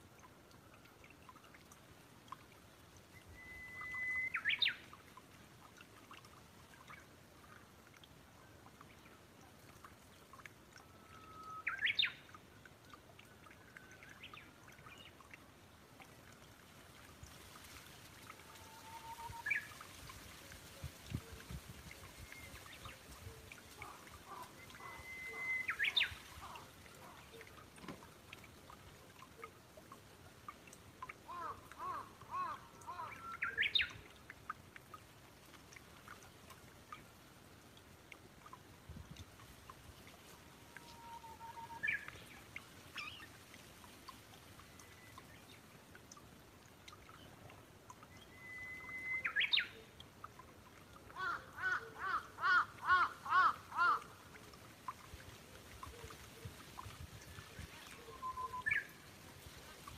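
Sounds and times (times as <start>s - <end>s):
faint bird chirps: 3.1s - 4.8s, 20.8s - 27.6s, 48.0s - 50.0s, 57.3s - 59.1s
bird whistle and shrill notes: 3.2s - 4.7s, 24.6s - 26.2s, 48.2s - 49.7s, 58.2s - 58.9s.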